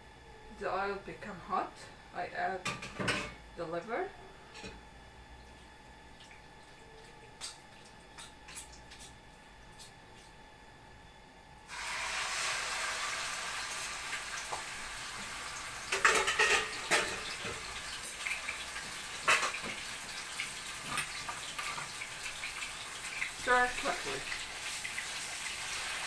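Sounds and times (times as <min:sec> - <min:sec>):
meat sizzling in hot oil: 0:11.7 - 0:26.0.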